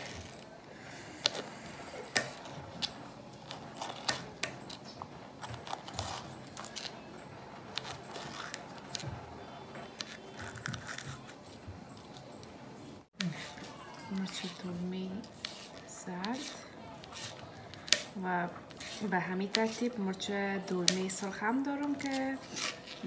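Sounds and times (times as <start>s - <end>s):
knife slicing pepper: 15.2s - 20.0s, 21.9s - 23.0s.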